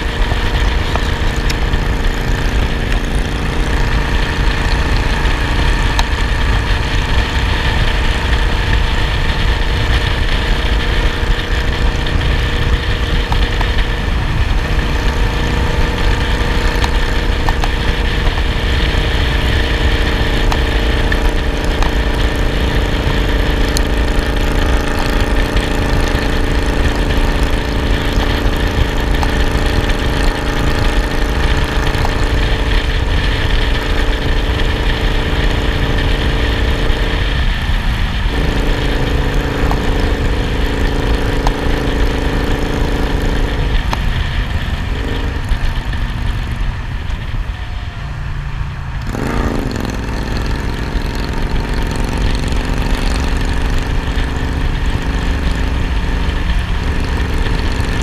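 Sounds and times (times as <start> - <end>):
motorcycle engine running: 0.0 - 58.0
wind rumble on microphone: 0.0 - 58.0.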